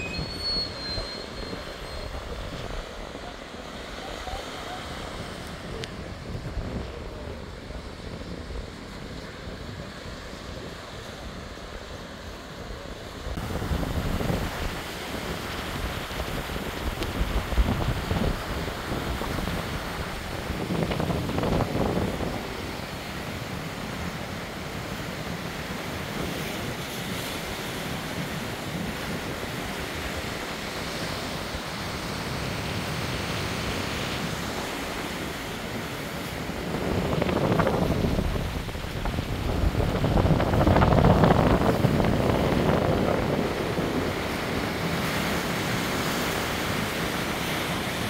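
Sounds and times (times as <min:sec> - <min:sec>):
wind buffeting microphone: 0:13.2 - 0:23.5, 0:34.3 - 0:48.0.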